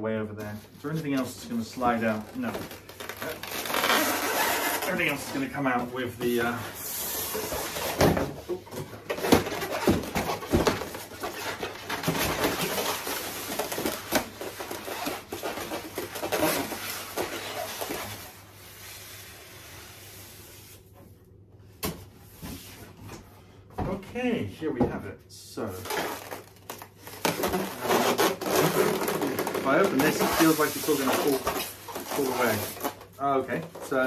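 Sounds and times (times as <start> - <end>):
cardboard scraping on polystyrene: 0.4 - 8.3, 9.0 - 20.9, 25.8 - 34.0
knocks and rustles: 7.4 - 18.2.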